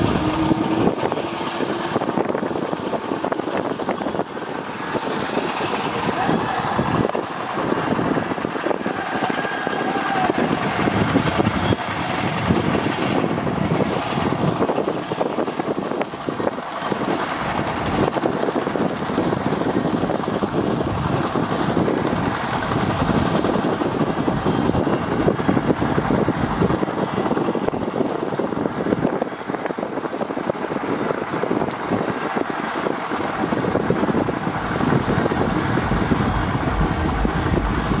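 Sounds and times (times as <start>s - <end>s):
diesel tractor engines running: 0.0s - 38.0s
wind noise on microphone: 0.0s - 38.0s.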